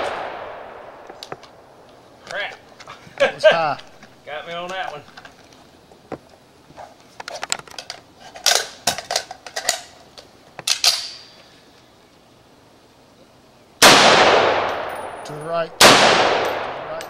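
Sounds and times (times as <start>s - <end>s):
rifle shot: 0.0s - 1.6s, 13.8s - 17.0s
rifle clicks and clatter: 7.2s - 11.3s.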